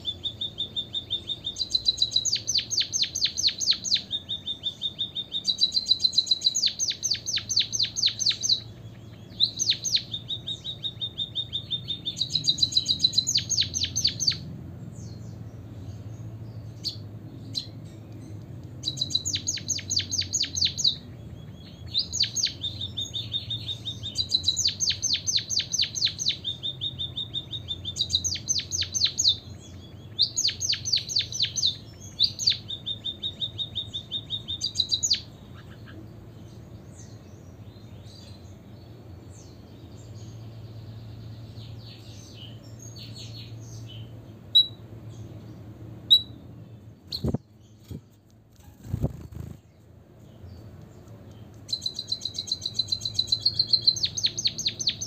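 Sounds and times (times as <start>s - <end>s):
bird singing whistles and clicks: 0.0s - 14.4s, 16.8s - 35.7s, 44.6s - 44.8s, 46.1s - 46.4s, 47.1s - 55.0s.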